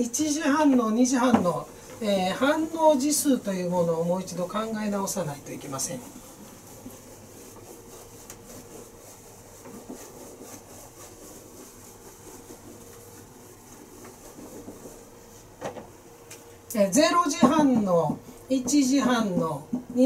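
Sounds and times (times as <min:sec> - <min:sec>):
faint steady hum: 0:00.0 - 0:20.0
eraser wiping whiteboard: 0:00.2 - 0:15.6.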